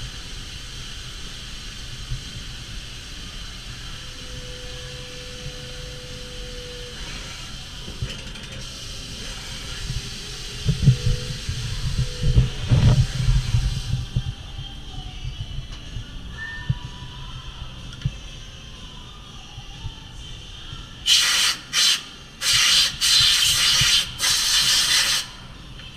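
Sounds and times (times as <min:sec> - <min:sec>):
coolant spray hissing: 0:00.0 - 0:14.3, 0:21.0 - 0:25.5.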